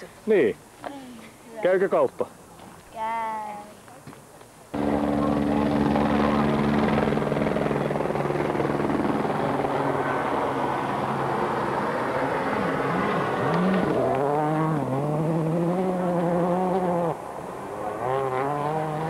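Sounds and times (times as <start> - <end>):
rally car engine revving: 11.0 - 19.0.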